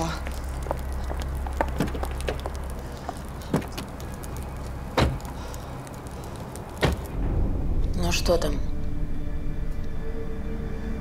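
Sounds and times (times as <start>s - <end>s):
high heels clicking on paving: 0.0s - 5.6s
car doors thudding shut: 5.0s - 5.2s, 6.8s - 7.1s.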